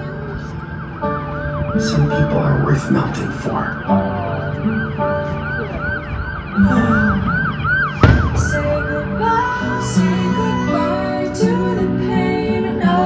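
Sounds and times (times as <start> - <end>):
firework shell boom: 8.0 - 8.8.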